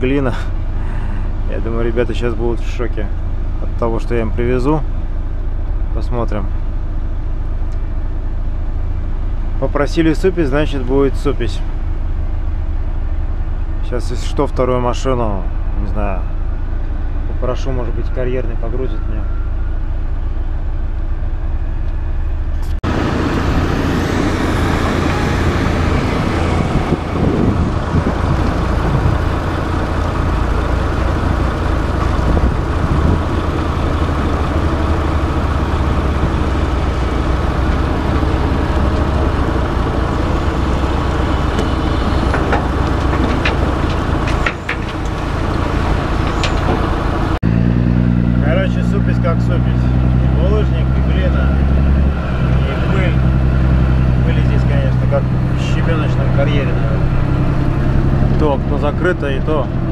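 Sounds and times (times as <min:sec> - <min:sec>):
heavy diesel engine running: 0:00.0 - 0:59.9
heavy machinery engine rumble: 0:00.0 - 0:59.9
sharp knocks: 0:41.5 - 0:45.4.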